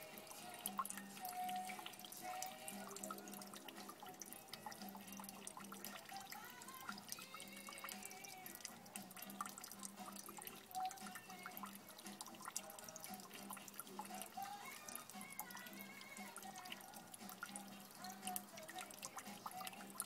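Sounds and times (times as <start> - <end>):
water dripping into metal bowl: 0.0 - 20.0.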